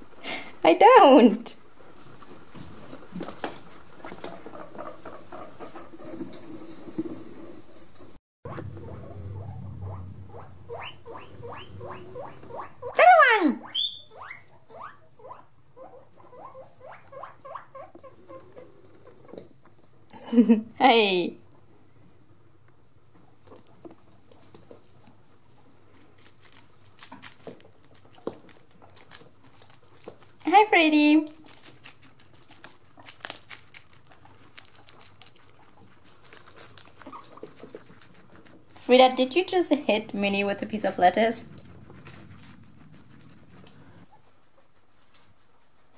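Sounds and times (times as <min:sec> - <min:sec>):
guinea pig squeaking: 0:02.0 - 0:06.2, 0:08.5 - 0:19.4, 0:25.9 - 0:45.3
guinea pig squealing: 0:04.0 - 0:06.0, 0:08.5 - 0:18.7, 0:31.4 - 0:44.3.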